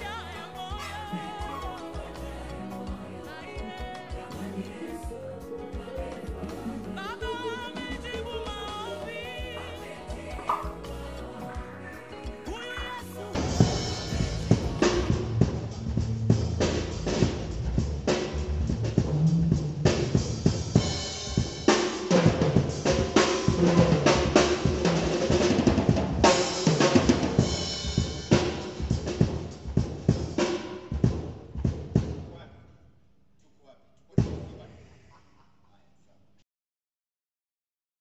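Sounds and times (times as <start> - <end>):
drum kit playing a groove: 0.0 - 32.3.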